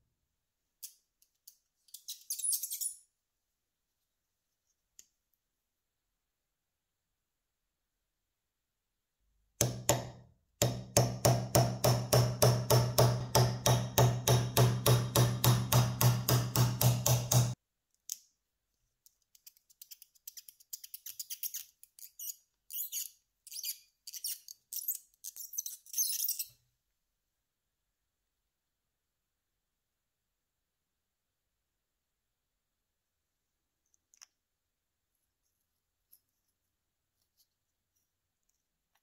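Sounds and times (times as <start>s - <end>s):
hammer tapping on punch: 9.6s - 17.6s.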